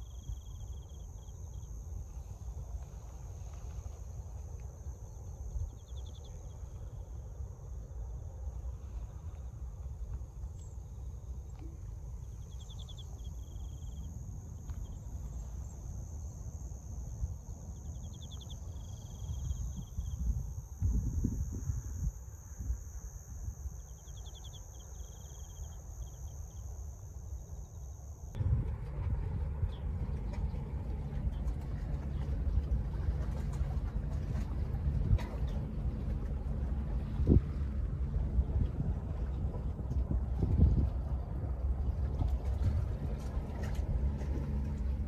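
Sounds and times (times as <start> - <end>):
insect pulsed call: 0.0 - 40.3
crickets trilling: 0.0 - 45.0
low rumble: 28.3 - 45.0.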